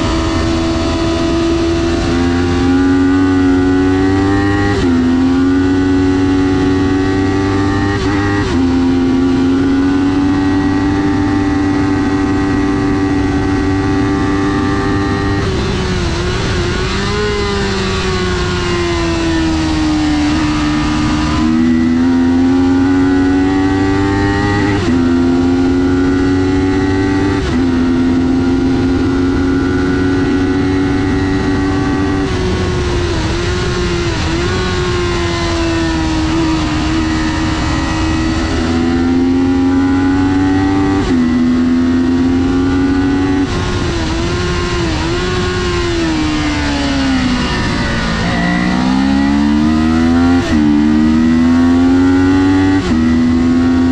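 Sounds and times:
motorcycle engine revving: 0.0s - 53.9s.

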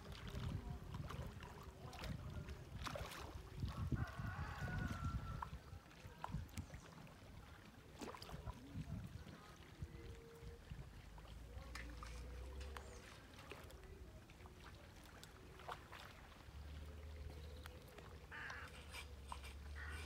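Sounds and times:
low wind rumble on microphone: 0.0s - 6.9s, 8.3s - 11.1s.

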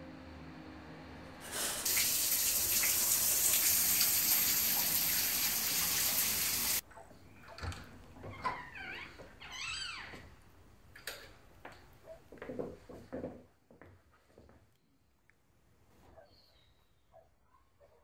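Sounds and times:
running water rushing: 1.5s - 6.8s.

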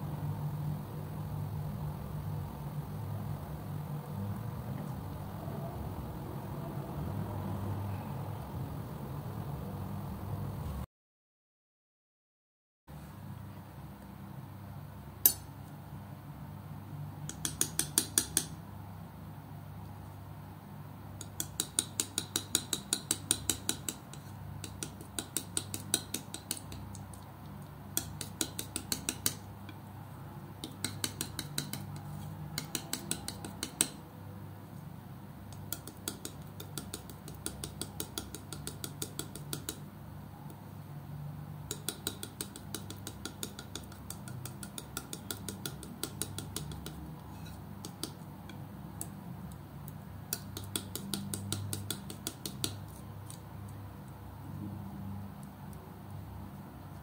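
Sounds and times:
palette knife spreading paint: 21.3s - 27.2s, 28.0s - 29.4s, 30.6s - 34.0s, 41.7s - 48.2s.

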